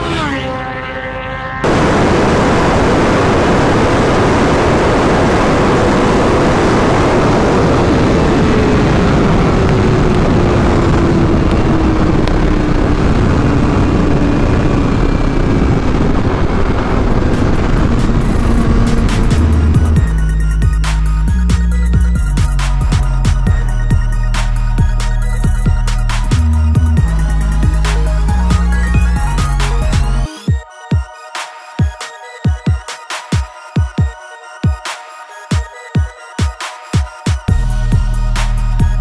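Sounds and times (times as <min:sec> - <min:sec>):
motorcycle engine passing by: 0:00.0 - 0:01.9
motorcycle engine: 0:00.0 - 0:24.2
wind rushing over microphone: 0:01.6 - 0:20.7.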